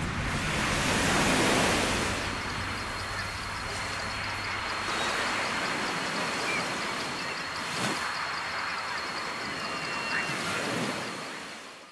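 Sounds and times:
thin high tone: 0.0 - 7.5
faint chirps: 0.0 - 10.6
ocean surf: 0.0 - 11.8.

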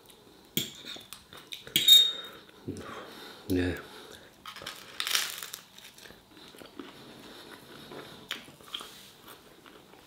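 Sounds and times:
person chewing: 4.1 - 10.0.

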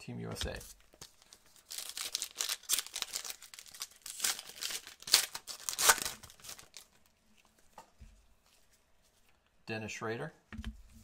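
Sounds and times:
foil wrapper tearing and crinkling: 1.1 - 6.9.

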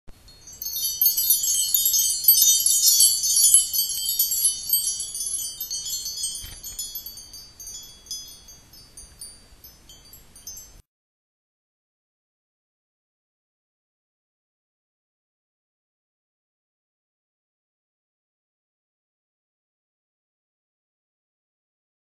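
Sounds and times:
high tinkling chimes: 0.2 - 10.8.

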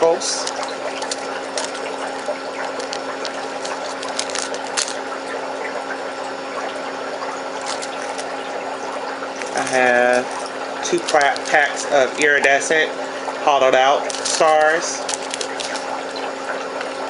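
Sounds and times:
plastic baggies crinkling: 0.0 - 5.2, 7.5 - 8.4, 9.3 - 12.9, 13.6 - 17.0
background hiss and hum: 0.0 - 17.0.

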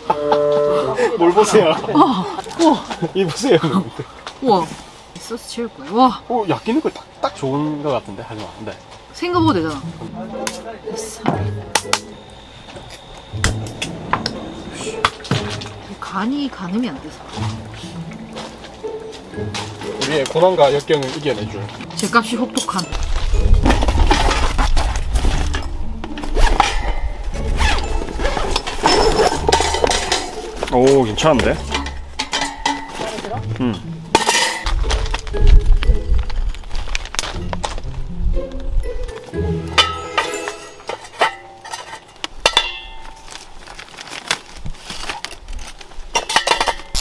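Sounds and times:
rustling and crinkling: 17.0 - 33.6, 34.2 - 39.3, 40.8 - 47.0
gear clinking and clattering: 22.6 - 33.4, 39.8 - 47.0
music with low bass: 23.0 - 39.9
ringing clinks: 27.7 - 30.4, 39.8 - 43.4.

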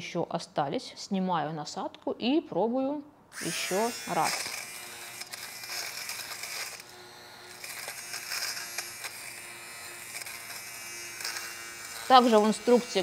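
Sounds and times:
fabric shaver motor buzzing: 3.3 - 13.0.

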